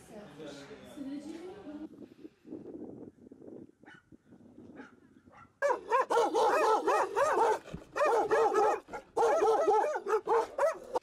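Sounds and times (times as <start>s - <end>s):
dogs barking: 4.8s - 11.0s.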